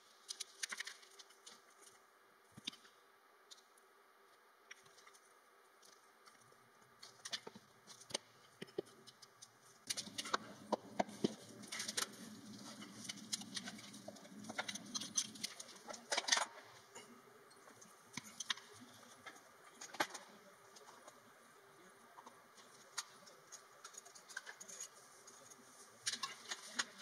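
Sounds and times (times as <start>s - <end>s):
wooden blocks clicking and knocking: 0.2s - 3.8s, 4.7s - 16.7s.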